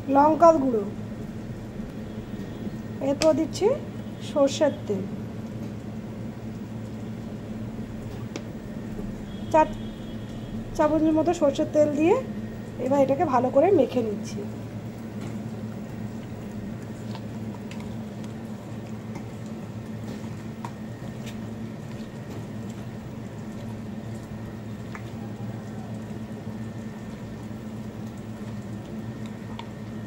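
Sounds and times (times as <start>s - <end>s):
steady low hum: 0.0s - 30.0s
hand squelching raw meat: 15.0s - 30.0s.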